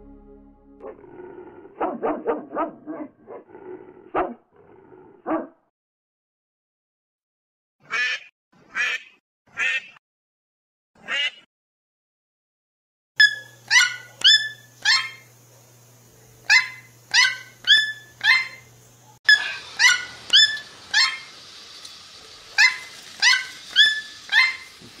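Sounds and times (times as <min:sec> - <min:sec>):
toucan calling: 0:16.5 - 0:18.7, 0:19.3 - 0:21.3.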